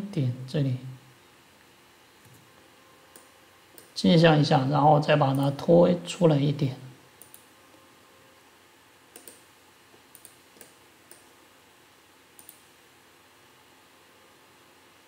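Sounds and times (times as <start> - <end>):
low steady hiss: 0.0 - 15.0
computer mouse clicking: 7.2 - 7.5, 9.1 - 11.3, 12.4 - 12.7.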